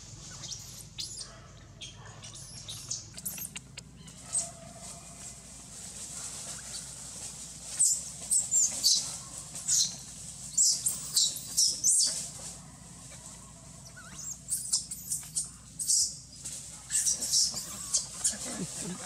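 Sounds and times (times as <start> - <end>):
baby monkey squealing: 0.2 - 1.3, 2.2 - 4.5, 7.8 - 9.1, 9.7 - 12.2, 13.9 - 16.1, 16.9 - 18.5.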